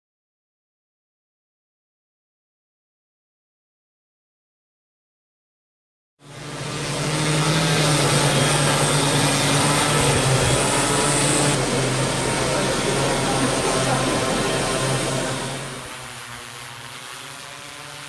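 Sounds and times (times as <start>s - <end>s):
drone propellers humming: 6.2s - 18.0s.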